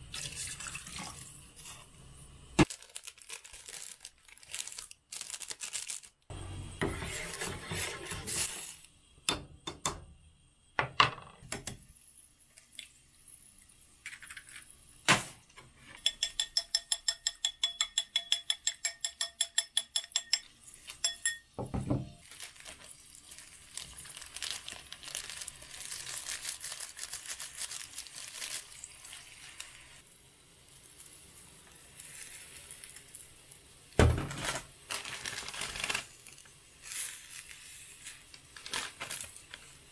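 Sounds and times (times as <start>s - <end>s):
pot hissing on burner: 6.3s - 9.2s, 27.8s - 33.9s
egg beaten in ceramic bowl: 16.0s - 21.5s.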